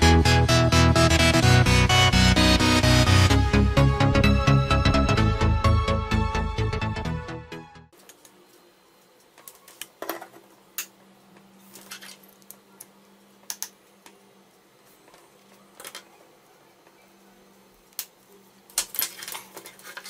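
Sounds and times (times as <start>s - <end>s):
electronic music: 0.0s - 7.9s.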